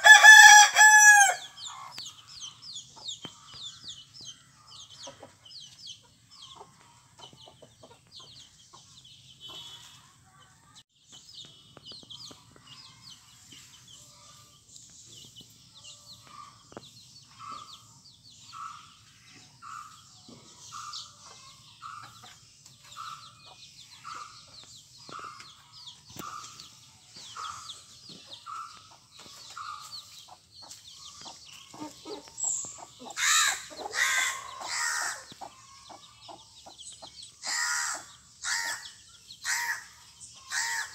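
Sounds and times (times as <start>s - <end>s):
loud chicken call: 0.0s - 1.4s, 33.2s - 35.3s, 37.4s - 38.8s, 40.5s - 40.9s
chicks peeping: 0.0s - 10.2s, 11.1s - 40.9s.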